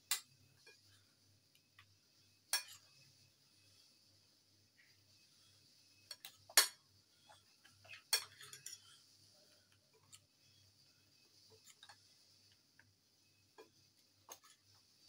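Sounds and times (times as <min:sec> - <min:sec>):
metal spoon clinking on glass bowl: 0:02.5 - 0:02.9.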